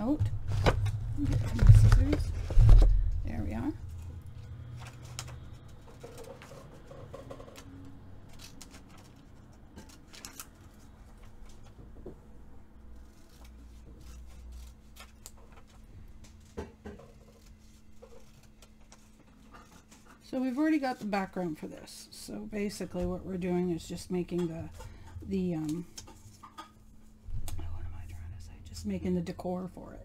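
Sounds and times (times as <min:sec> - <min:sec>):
scissors snipping paper: 0:07.6 - 0:11.4, 0:13.0 - 0:20.0.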